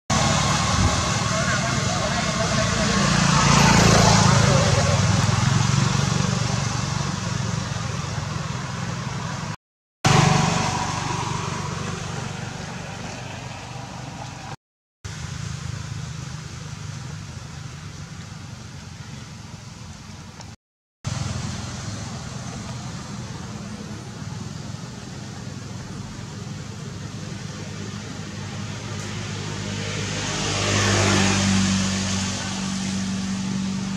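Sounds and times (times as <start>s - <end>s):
motor traffic hum: 0.1s - 33.9s.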